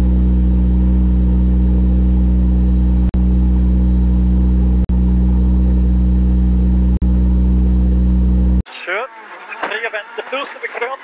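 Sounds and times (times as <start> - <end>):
rally car engine running: 0.0 - 8.6.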